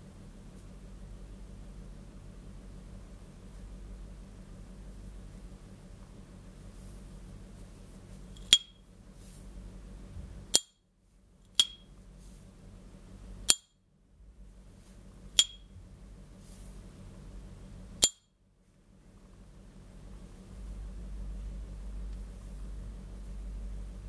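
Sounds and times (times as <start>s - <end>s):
lighter lid ping: 11.6s - 11.8s, 15.4s - 15.6s.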